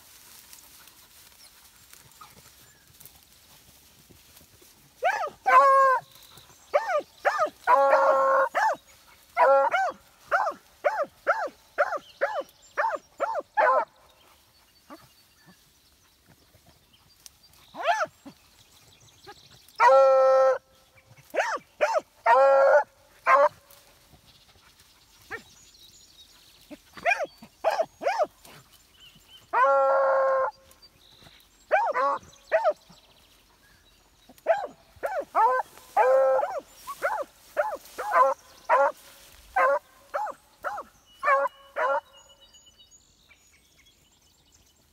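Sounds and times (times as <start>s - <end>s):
hounds long baying: 5.0s - 13.9s, 21.2s - 23.7s, 34.3s - 42.2s.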